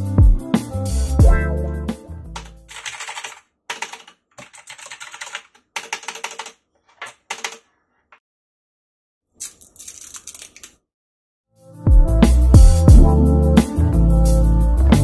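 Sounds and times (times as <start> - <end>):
mechanical keyboard typing: 2.4 - 7.7, 9.4 - 10.8.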